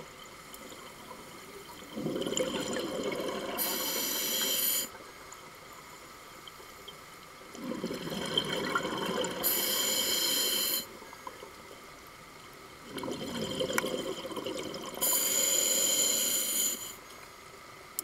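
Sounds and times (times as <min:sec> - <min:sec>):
exhaled bubbles gurgling: 0:00.0 - 0:05.0, 0:07.5 - 0:11.8, 0:12.8 - 0:16.4
diver breathing through regulator: 0:09.4 - 0:10.9, 0:15.0 - 0:17.0.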